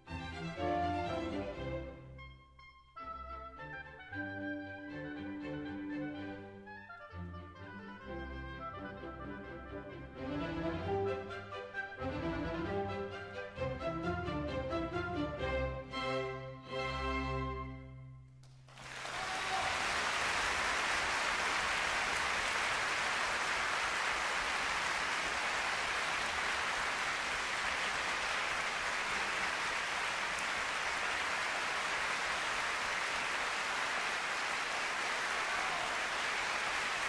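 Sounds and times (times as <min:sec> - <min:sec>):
audience applauding: 0:18.4 - 0:37.0.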